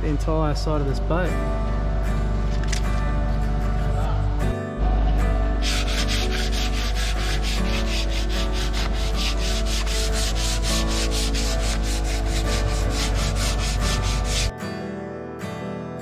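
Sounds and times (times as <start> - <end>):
hand sanding scratching strokes: 5.6 - 14.5.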